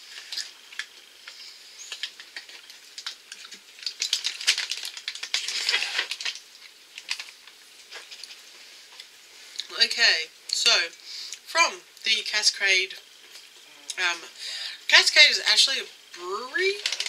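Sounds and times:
handling noise crackling clicks: 16.8 - 17.0.

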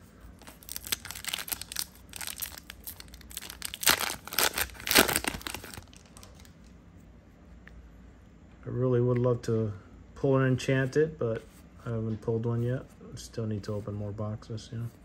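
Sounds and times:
foil wrapper tearing and crinkling: 0.4 - 6.5.

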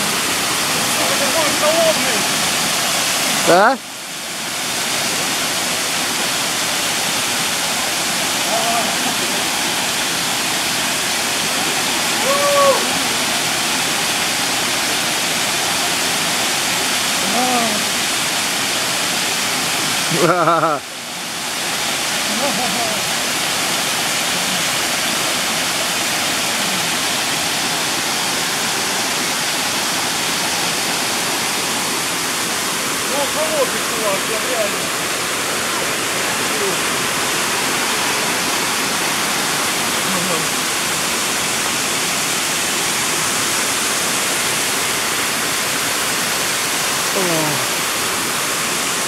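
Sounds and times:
waterfall rushing and splashing: 0.0 - 49.0.

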